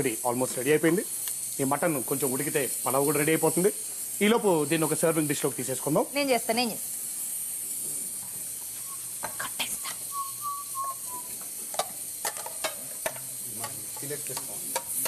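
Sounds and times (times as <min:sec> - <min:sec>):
frying hiss: 0:00.0 - 0:15.0
utensils and dishes clinking: 0:11.7 - 0:15.0.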